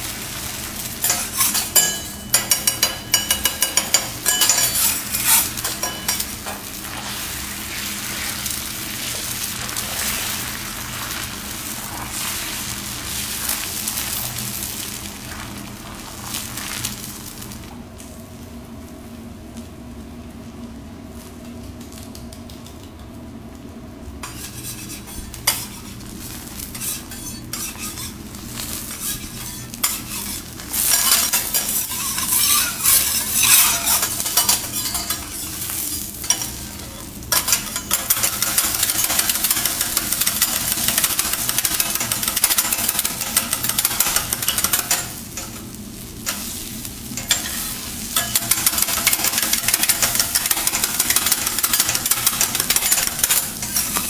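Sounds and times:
eggs sizzling on a griddle: 0.0 - 18.0, 24.2 - 54.0
metal spatula scraping and chopping: 1.0 - 7.2, 24.2 - 26.0, 26.7 - 46.5, 47.2 - 54.0.

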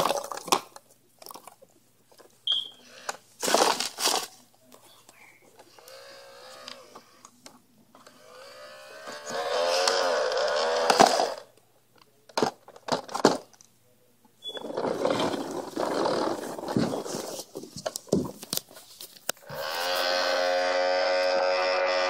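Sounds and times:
clattering and rustling: 14.5 - 20.0.

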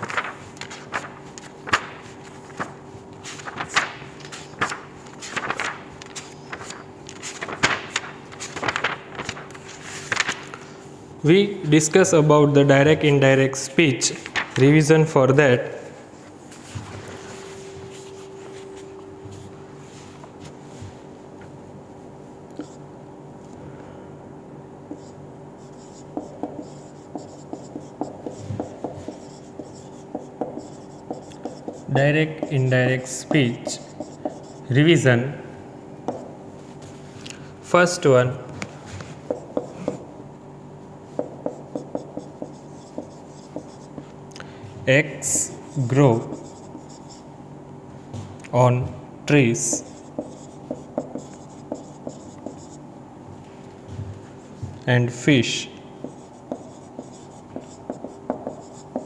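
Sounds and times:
faint steady hum: 0.0 - 59.0
marker scratching on whiteboard: 22.6 - 22.8, 24.9 - 34.8, 36.1 - 36.3, 39.0 - 40.0, 41.1 - 44.1, 45.2 - 47.3, 49.4 - 52.8, 56.0 - 59.0.

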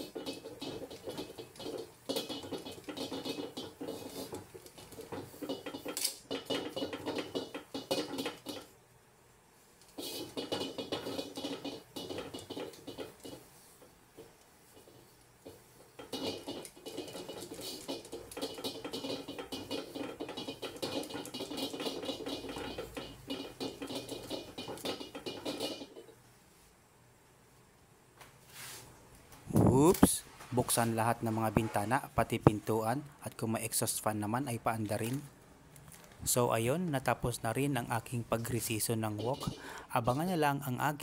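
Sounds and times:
tongs scraping inside a wok: 0.0 - 8.8, 9.8 - 26.2, 38.3 - 40.3.

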